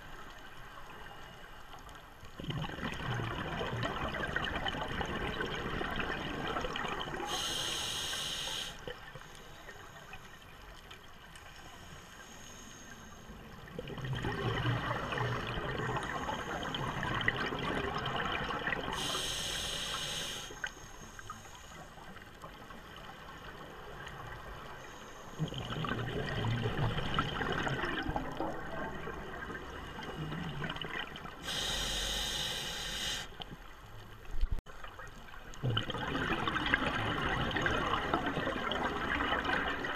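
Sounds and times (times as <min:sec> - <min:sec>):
bubbling exhale underwater: 0:02.4 - 0:07.7, 0:13.8 - 0:19.5, 0:25.4 - 0:32.5, 0:35.6 - 0:39.9
regulator inhale hiss: 0:07.2 - 0:10.2, 0:11.6 - 0:13.4, 0:19.0 - 0:22.1, 0:31.4 - 0:33.4.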